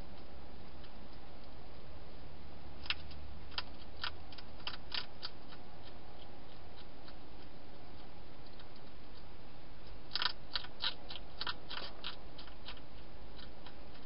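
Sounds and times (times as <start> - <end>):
hedgehog chewing food: 2.8 - 14.0.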